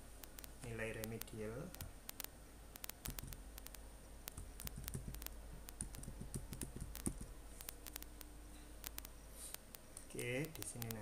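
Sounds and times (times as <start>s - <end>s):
keyboard keys clicking: 0.3s - 8.2s.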